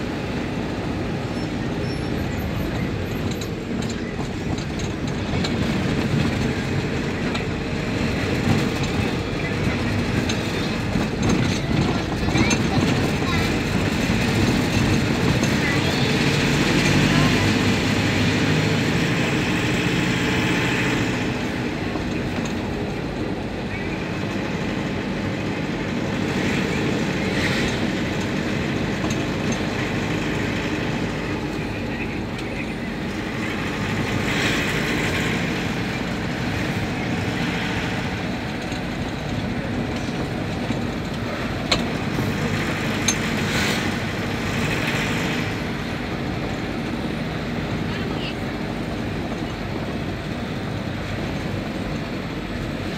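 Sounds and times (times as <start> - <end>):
vehicle engine hum: 0.0 - 52.9
road noise hiss: 13.2 - 52.9.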